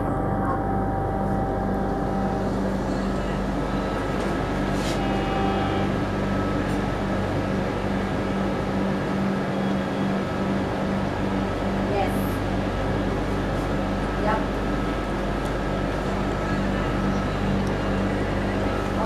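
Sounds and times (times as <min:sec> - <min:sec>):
diesel locomotive engine drone: 0:00.0 - 0:19.0.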